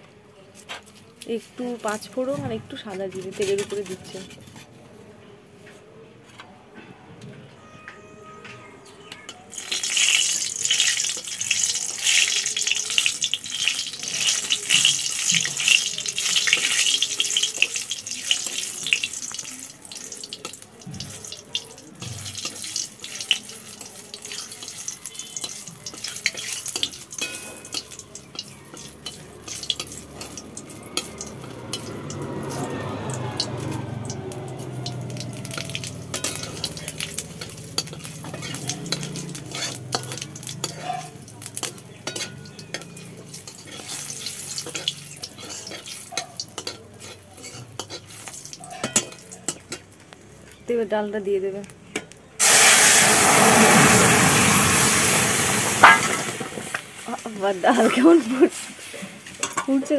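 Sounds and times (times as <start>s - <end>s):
metal spatula stirring in pan: 9.5s - 50.0s, 55.1s - 59.9s
seeds sizzling in hot oil: 9.5s - 59.9s.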